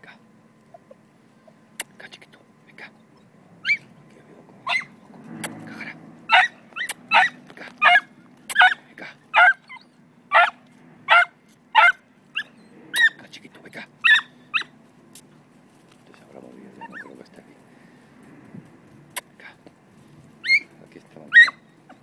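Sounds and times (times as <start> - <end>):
dog yelping: 3.1 - 3.9, 4.6 - 13.2, 14.0 - 14.8, 16.7 - 17.2, 20.4 - 22.0.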